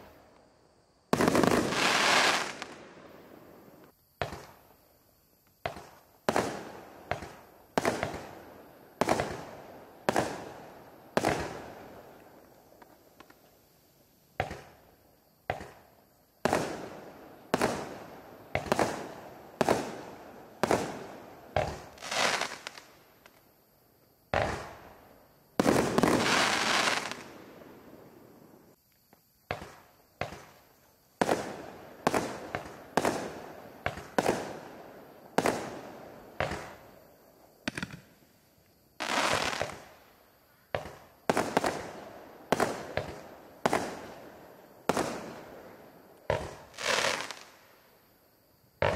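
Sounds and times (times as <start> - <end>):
fireworks bangs and pops: 1.1 - 4.6, 5.5 - 8.4, 9.0 - 13.6, 14.4 - 14.8, 15.4 - 23.5, 24.3 - 24.9, 25.6 - 27.4, 29.1 - 34.7, 35.4 - 36.8, 37.6 - 38.2, 39.0 - 40.0, 40.7 - 44.2, 44.8 - 45.5, 46.2 - 47.6.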